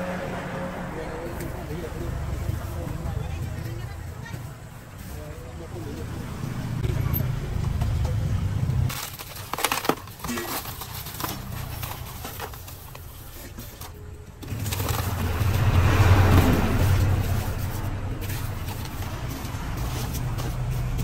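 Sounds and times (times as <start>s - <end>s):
vehicle engine droning: 0.0s - 3.9s, 11.0s - 21.0s
crushed ice crunching: 8.9s - 21.0s.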